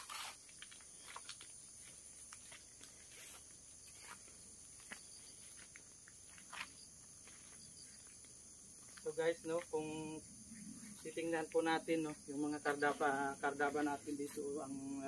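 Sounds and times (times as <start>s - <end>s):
footsteps crunching on gravel: 0.0s - 9.8s
crickets chirring: 0.0s - 15.0s.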